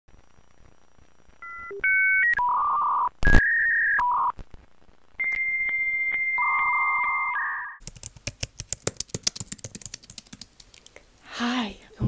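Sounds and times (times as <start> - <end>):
burst of static: 0.1 - 1.4, 3.2 - 5.3
regular clicks: 7.8 - 11.1.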